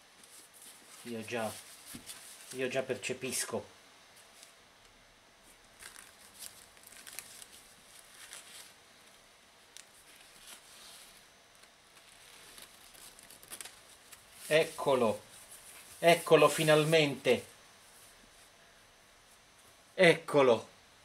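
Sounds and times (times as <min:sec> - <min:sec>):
foam wrap rustling: 0:00.2 - 0:02.8, 0:05.4 - 0:17.5.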